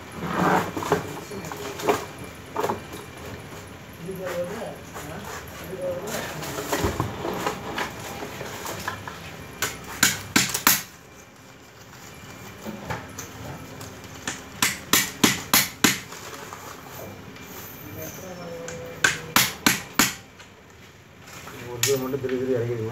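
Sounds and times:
handling noise: 0:00.4 - 0:17.4.

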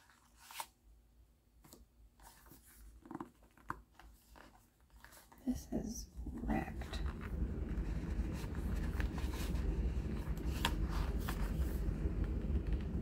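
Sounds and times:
photobook pages rustling: 0:00.0 - 0:00.8, 0:01.6 - 0:05.5, 0:06.4 - 0:13.0
steady low rumble: 0:05.4 - 0:13.0.

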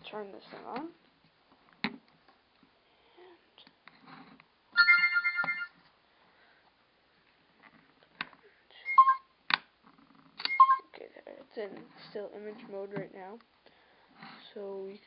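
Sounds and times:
short electronic beeps: 0:08.9 - 0:09.3, 0:10.5 - 0:10.8.

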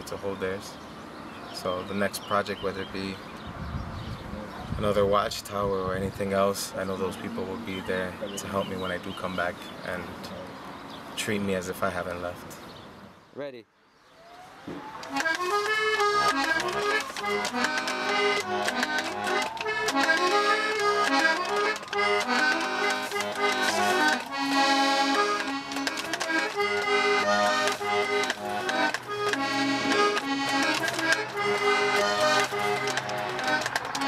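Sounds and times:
instrumental background music: 0:15.0 - 0:34.0.

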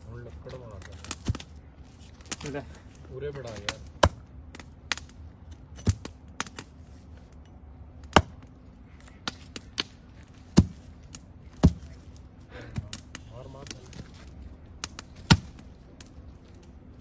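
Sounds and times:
axe chopping wood: 0:03.6 - 0:04.2, 0:08.0 - 0:08.5, 0:10.5 - 0:11.9, 0:14.8 - 0:15.6.

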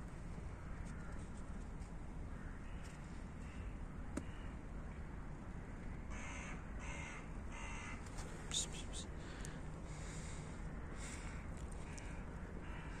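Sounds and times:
crow cawing: 0:02.3 - 0:04.6, 0:06.1 - 0:08.1, 0:09.3 - 0:13.0.

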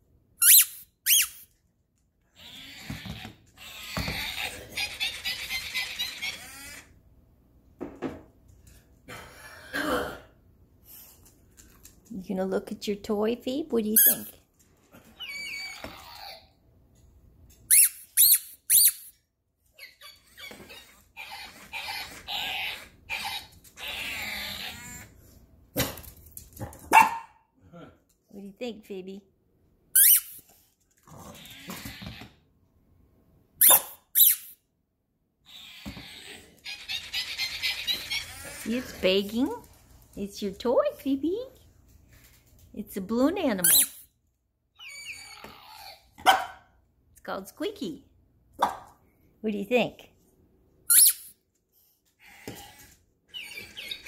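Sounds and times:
toy balloon squeaks: 0:00.4 - 0:01.5, 0:02.3 - 0:07.0, 0:14.0 - 0:14.3, 0:15.2 - 0:16.5, 0:17.7 - 0:25.2, 0:30.0 - 0:30.4, 0:33.6 - 0:34.6, 0:35.5 - 0:38.9, 0:43.6 - 0:44.1, 0:50.9 - 0:51.4, 0:52.3 - 0:54.0.

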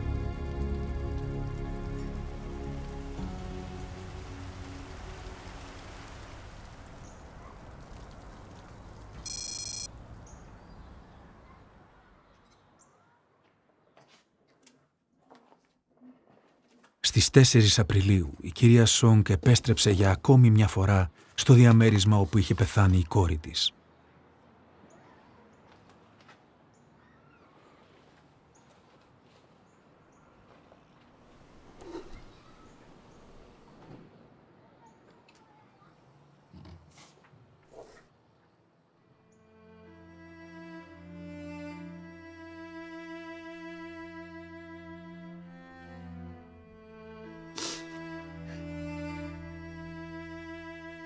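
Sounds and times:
rain on stony ground: 0:00.0 - 0:10.4
short high electronic beep: 0:09.3 - 0:09.9
faint bird chirps: 0:26.7 - 0:27.9, 0:32.0 - 0:33.8.

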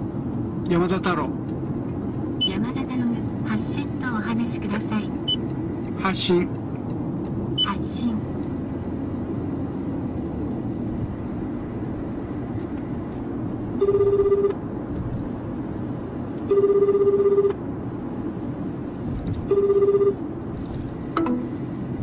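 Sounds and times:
low cabin hum: 0:00.0 - 0:22.0
telephone ringback tone: 0:13.8 - 0:14.6, 0:16.5 - 0:17.6, 0:19.5 - 0:20.2.

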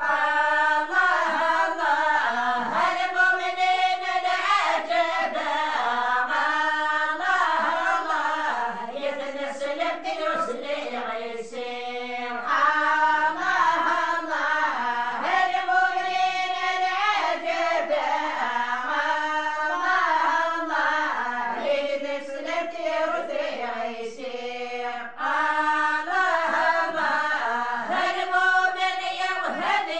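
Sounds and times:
women chanting unaccompanied: 0:00.0 - 0:29.9.

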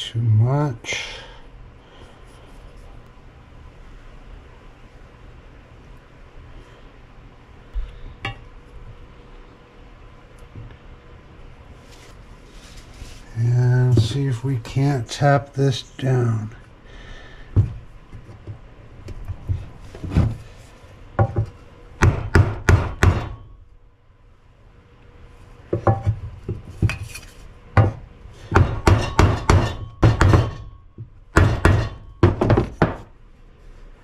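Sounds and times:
hammer knocking on wooden block: 0:21.2 - 0:23.4, 0:27.8 - 0:33.1.

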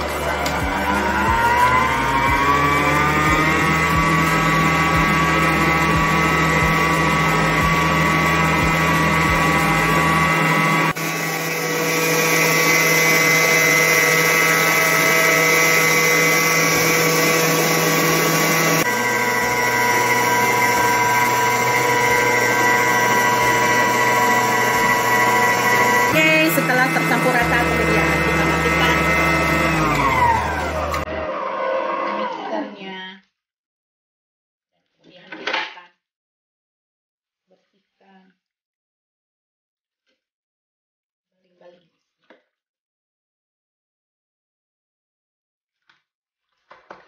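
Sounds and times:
stand mixer motor whining: 0:00.0 - 0:32.5.

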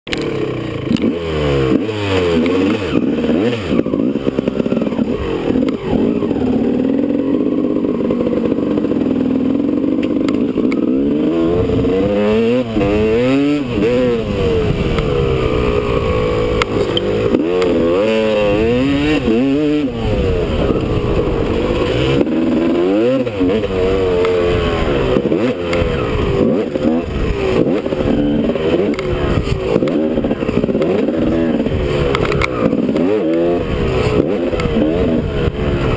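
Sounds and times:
motocross bike engine revving: 0:00.1 - 0:35.9.

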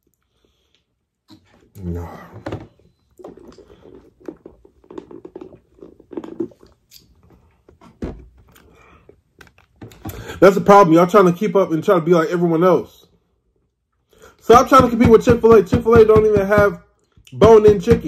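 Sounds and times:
man chewing: 0:03.2 - 0:07.5.

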